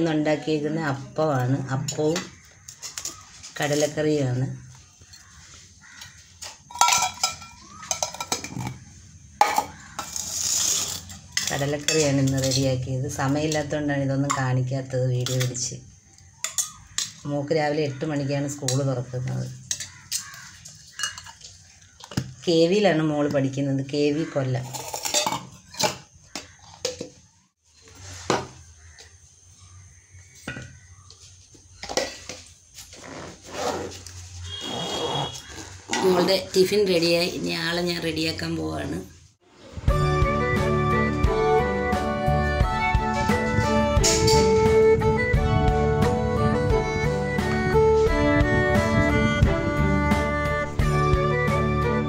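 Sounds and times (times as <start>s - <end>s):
steel containers clinking: 6.4s - 14.6s, 16.4s - 17.2s, 19.6s - 22.2s, 24.5s - 26.1s
steel boxes clinking: 6.5s - 8.8s, 24.6s - 26.0s.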